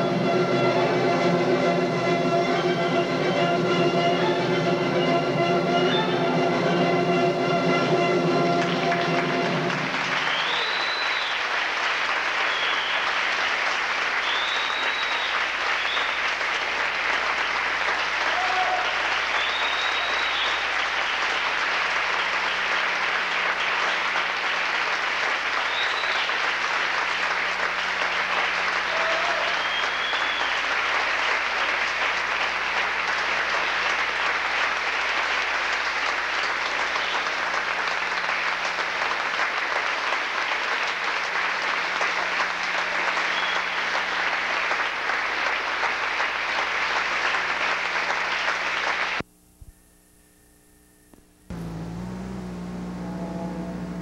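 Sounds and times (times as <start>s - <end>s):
audience applauding: 8.4s - 49.2s
brief calls from audience: 10.1s - 11.5s, 18.2s - 21.0s, 28.6s - 30.7s.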